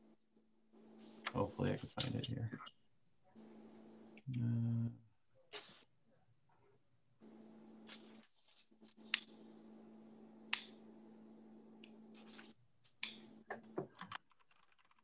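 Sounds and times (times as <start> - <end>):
low steady hum: 0.0 - 5.2, 6.6 - 13.8.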